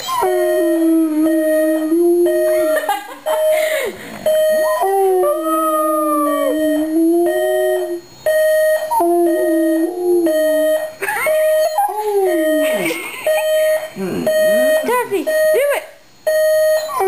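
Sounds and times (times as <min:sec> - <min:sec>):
alarm clock beeping: 0:00.0 - 0:17.0
dog howling: 0:04.7 - 0:08.0, 0:08.9 - 0:13.0.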